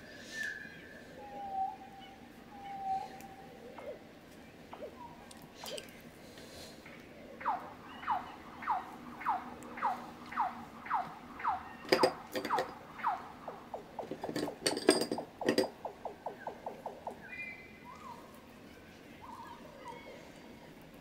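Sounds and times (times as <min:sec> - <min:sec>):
brush clinking glass jar: 0:11.9 - 0:12.8, 0:14.0 - 0:15.9.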